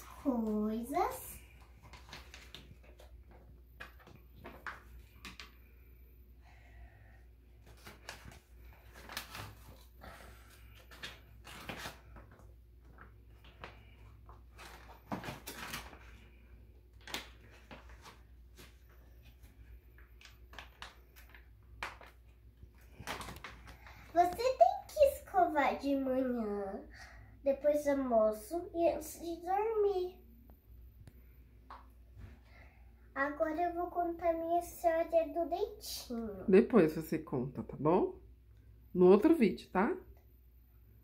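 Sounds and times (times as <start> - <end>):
paper crinkling and rustling: 0.2 - 5.6, 7.6 - 9.9, 10.5 - 24.6.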